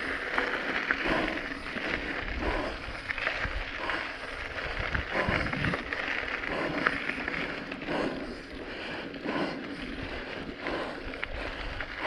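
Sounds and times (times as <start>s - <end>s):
wind rushing over microphone: 1.0s - 5.9s.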